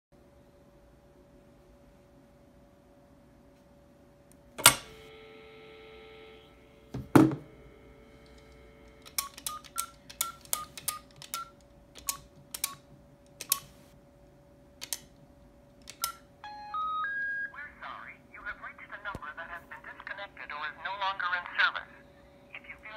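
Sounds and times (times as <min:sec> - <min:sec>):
payphone handset clunk: 0:04.6 - 0:05.0, 0:06.9 - 0:07.5
telephone ringing tone: 0:04.6 - 0:11.6, 0:16.0 - 0:17.8
keypad button clicks and beeps: 0:09.0 - 0:12.8, 0:13.4 - 0:13.8, 0:15.9 - 0:17.3.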